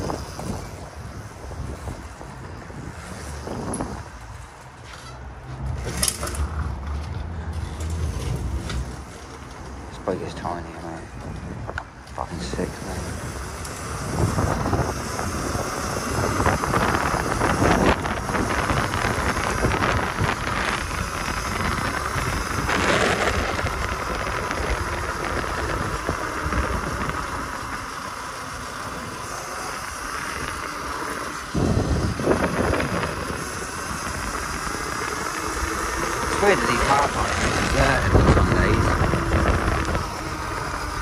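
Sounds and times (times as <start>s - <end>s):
road and tyre noise: 0.0s - 41.0s
wind buffeting microphone: 0.0s - 41.0s.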